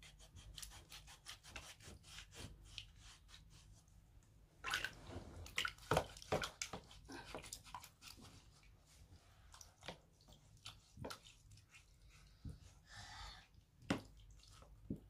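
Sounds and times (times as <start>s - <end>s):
water splashing in a basin: 4.6s - 6.8s.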